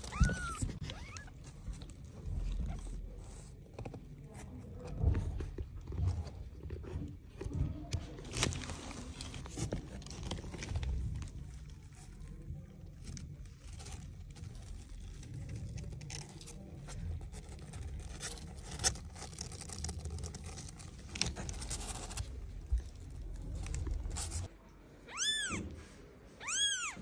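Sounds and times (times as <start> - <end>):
kitten mewing: 0.0 - 1.4, 25.1 - 25.8, 26.4 - 27.0
rustling and handling noise: 0.0 - 27.0.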